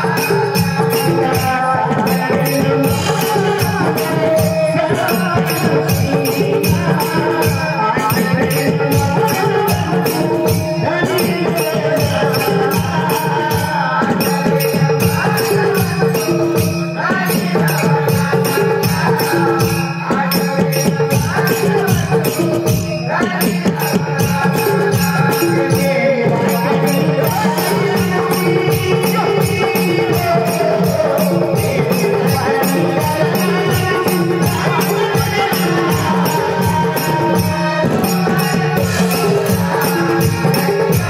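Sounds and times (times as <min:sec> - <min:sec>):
drum beat: 0:00.0 - 0:41.0
jingling percussion: 0:00.0 - 0:41.0
men singing folk music: 0:00.0 - 0:41.0.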